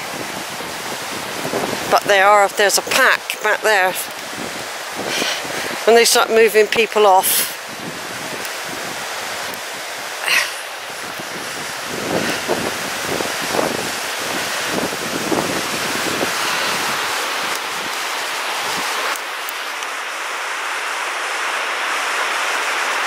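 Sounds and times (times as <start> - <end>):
river rushing over boulders: 0.0 - 23.0.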